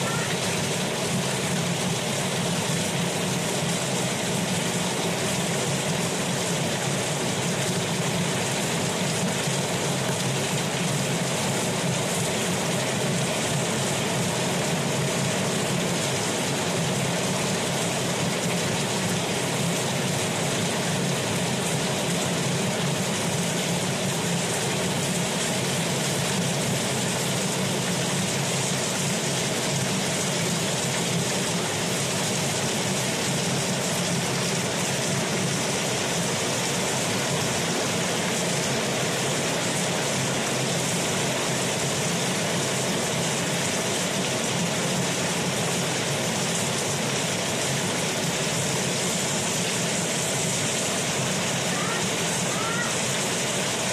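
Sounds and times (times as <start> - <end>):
water gushing from pipe: 0.0 - 53.9.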